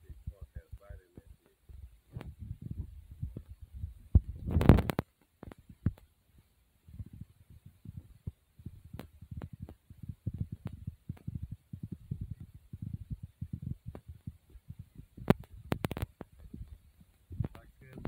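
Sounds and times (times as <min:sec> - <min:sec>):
wind buffeting microphone: 0:00.0 - 0:18.0
sharp clicks: 0:15.2 - 0:18.0.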